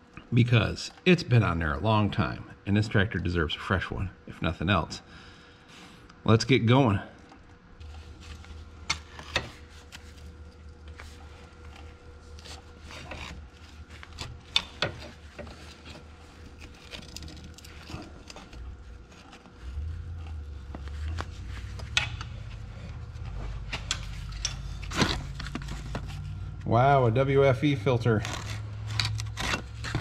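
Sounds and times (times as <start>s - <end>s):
low rumble: 18.6s - 27.4s.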